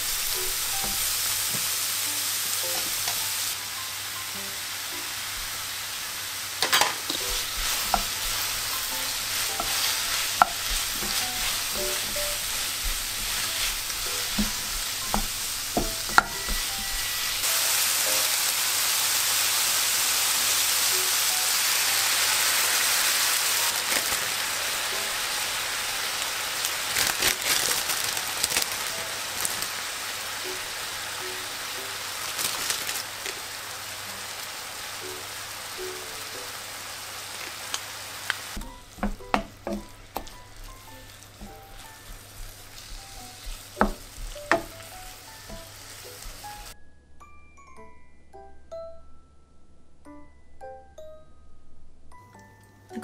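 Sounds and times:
meat sizzling in a frying pan: 0:00.0 - 0:46.8
wooden spatula knocking and scraping: 0:07.1 - 0:17.4, 0:38.6 - 0:44.9.

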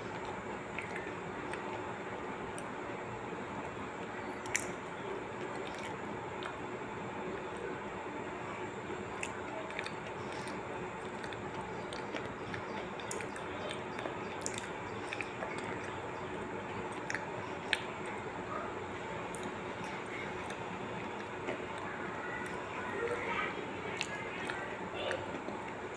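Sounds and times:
person chewing with mouth clicks: 0:04.4 - 0:04.8, 0:09.1 - 0:16.0, 0:16.8 - 0:18.2, 0:19.2 - 0:23.3.

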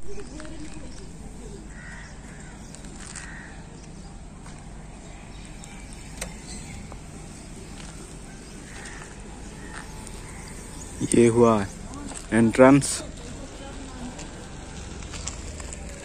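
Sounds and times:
harsh bird calls: 0:00.8 - 0:04.2, 0:04.9 - 0:13.3.

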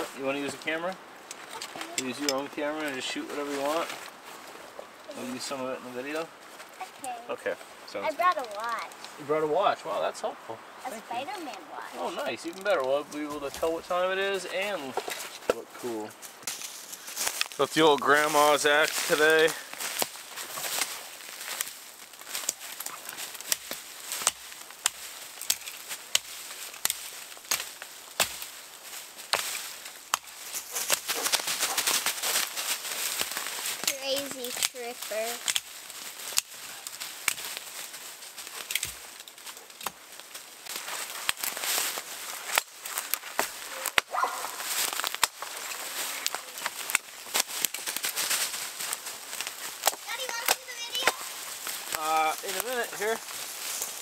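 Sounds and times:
twigs crackling: 0:00.0 - 0:54.0
axe chopping branches: 0:18.9 - 0:54.0
axe chopping wood: 0:23.5 - 0:28.5.

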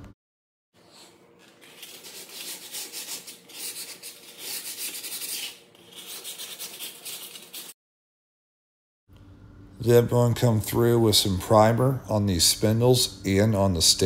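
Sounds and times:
sandpaper rubbing on wood: 0:01.5 - 0:07.8.

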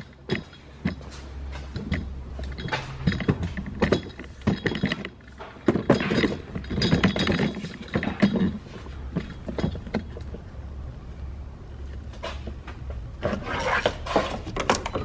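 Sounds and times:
clinks clicks and knocks of handling: 0:00.0 - 0:10.5.

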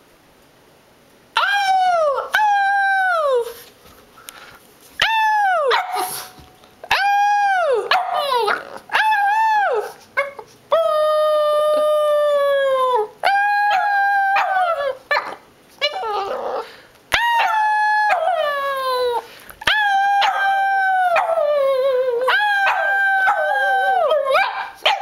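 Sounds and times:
dog howling: 0:06.9 - 0:25.0.

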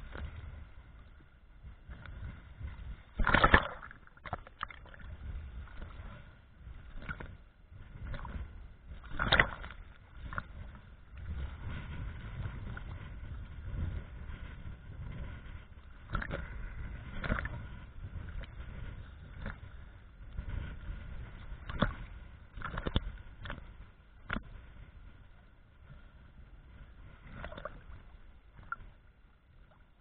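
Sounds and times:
sea waves sloshing and slapping: 0:00.0 - 0:30.0
sharp water splashes: 0:03.2 - 0:05.1, 0:09.1 - 0:09.8.

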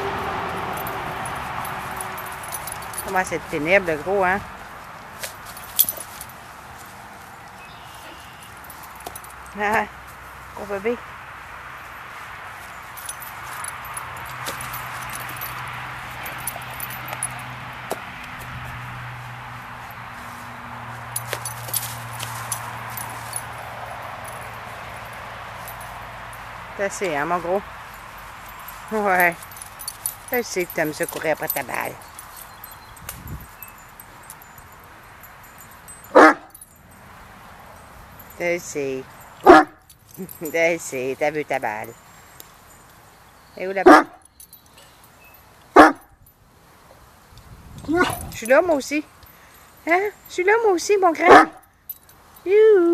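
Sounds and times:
metal dog collar jingling: 0:00.0 - 0:11.0, 0:12.1 - 0:52.7
dog barking loudly: 0:36.1 - 0:36.5, 0:39.4 - 0:39.8, 0:43.8 - 0:44.2, 0:45.8 - 0:46.1, 0:51.2 - 0:51.6.

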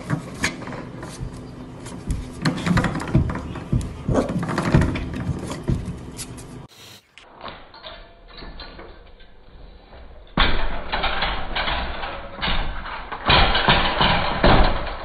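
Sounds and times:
puppy paws knocking on door: 0:02.1 - 0:06.0
metal baby gate clattering: 0:02.4 - 0:05.8, 0:07.6 - 0:09.4, 0:10.2 - 0:15.0.

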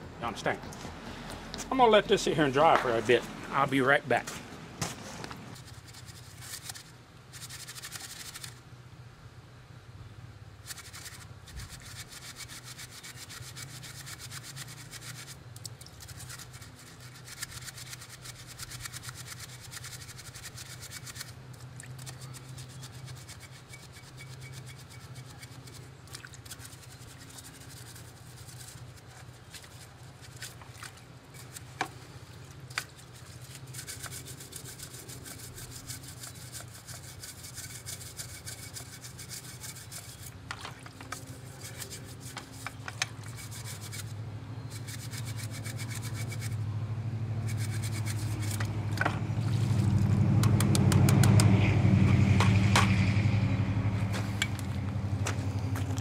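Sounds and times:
hand tool scrubbing and scraping: 0:04.8 - 0:08.6, 0:10.6 - 0:44.1, 0:44.7 - 0:46.6, 0:47.4 - 0:49.9.

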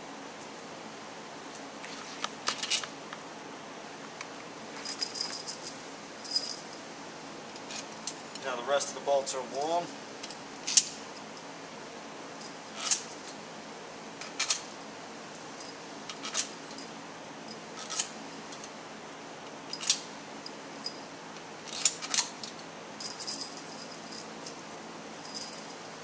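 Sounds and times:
metal bolts clinking: 0:04.8 - 0:06.7, 0:12.4 - 0:13.2, 0:14.2 - 0:14.7, 0:15.6 - 0:16.9, 0:17.5 - 0:18.7, 0:19.7 - 0:21.0, 0:21.6 - 0:24.6.

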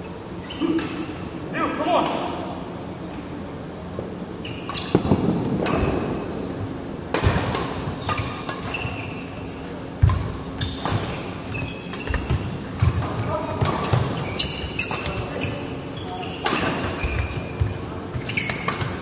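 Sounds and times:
shoes squeaking on court: 0:00.4 - 0:01.2, 0:04.4 - 0:06.8, 0:07.4 - 0:19.0.

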